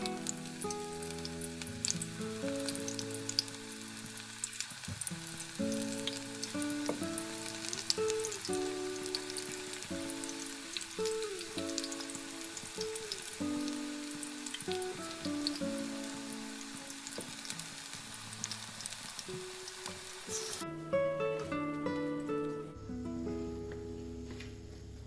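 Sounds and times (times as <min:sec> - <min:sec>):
soft background music: 0:00.0 - 0:25.0.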